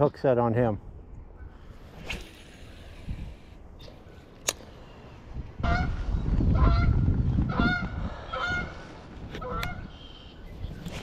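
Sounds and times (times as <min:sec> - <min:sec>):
geese honking: 0:06.6 - 0:08.8.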